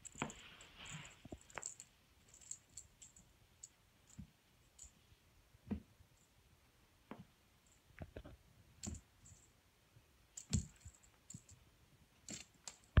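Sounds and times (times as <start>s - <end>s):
soft clicks and light thumps: 7.0s - 9.4s.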